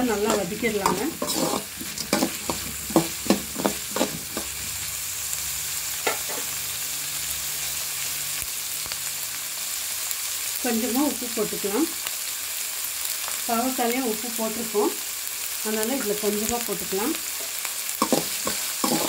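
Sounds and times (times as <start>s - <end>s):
steel spoon scraping a pan: 0.0s - 4.6s, 18.0s - 19.0s
food sizzling in hot oil: 0.0s - 19.0s.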